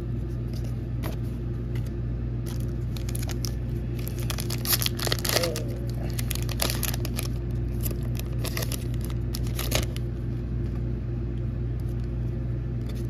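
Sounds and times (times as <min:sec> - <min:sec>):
steady low hum: 0:00.0 - 0:13.0
foil wrapper crinkling: 0:02.4 - 0:10.1.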